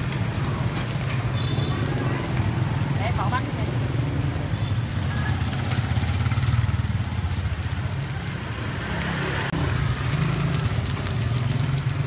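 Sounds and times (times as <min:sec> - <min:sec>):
scooter engine idling: 0:05.1 - 0:07.5.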